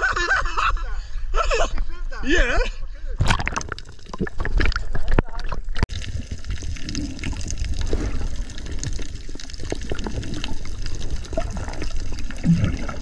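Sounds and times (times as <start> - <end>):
bubbling: 3.2 - 13.0
underwater rumble: 3.2 - 13.0.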